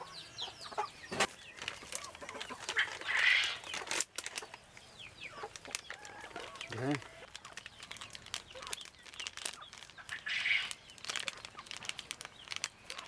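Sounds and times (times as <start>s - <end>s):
plastic bag crinkling: 1.2s - 13.0s.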